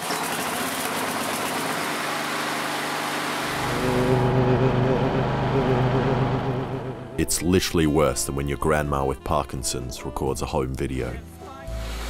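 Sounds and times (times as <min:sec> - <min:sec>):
lawn mower engine starting and running: 0:00.0 - 0:07.4.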